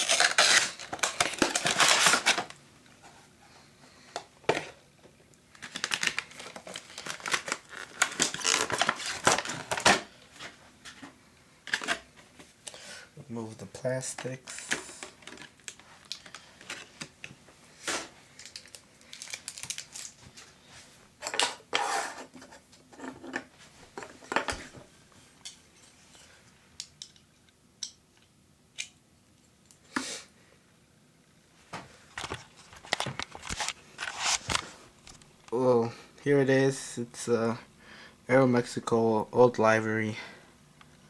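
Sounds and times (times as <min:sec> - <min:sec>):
plastic wrapping crinkling: 0:00.0 - 0:02.6, 0:05.5 - 0:10.2, 0:14.4 - 0:17.1, 0:18.3 - 0:20.5.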